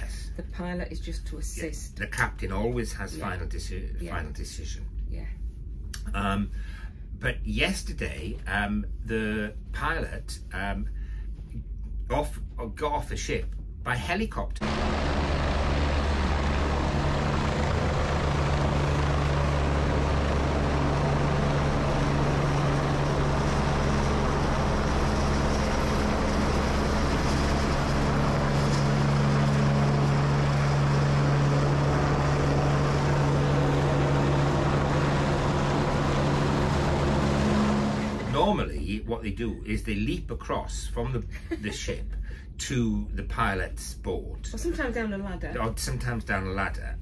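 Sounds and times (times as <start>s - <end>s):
helicopter flying close by: 14.6s - 38.4s.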